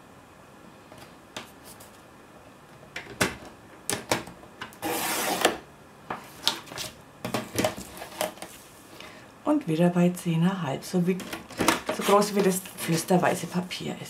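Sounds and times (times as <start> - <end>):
paper trimmer blade slicing paper: 4.8 - 5.6.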